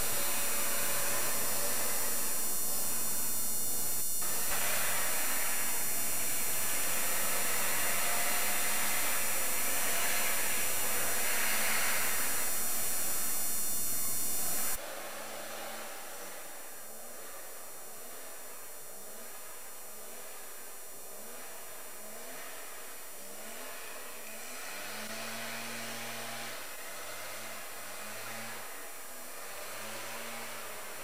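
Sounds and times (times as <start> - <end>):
low hum: 0.0 - 14.8.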